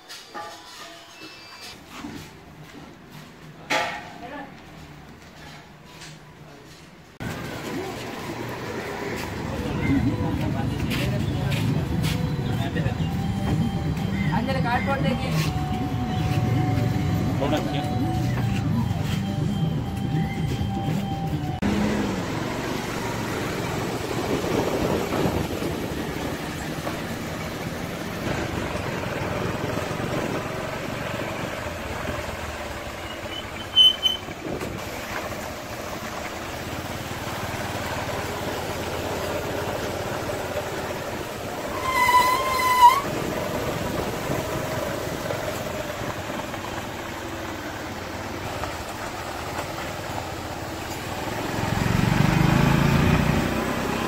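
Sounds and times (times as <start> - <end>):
motorcycle engine and road noise: 1.5 - 54.0
vehicle horn: 41.7 - 43.0.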